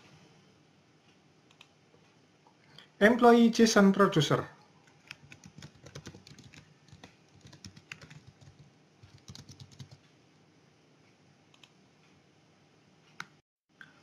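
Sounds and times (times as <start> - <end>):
faint keyboard typing: 1.5 - 1.8, 4.7 - 10.2, 11.5 - 11.8.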